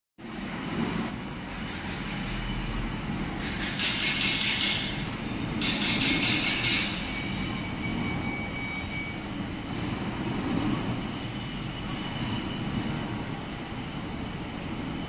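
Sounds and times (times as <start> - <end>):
machinery low rumble: 6.5 - 15.0
thin high whine: 6.8 - 15.0.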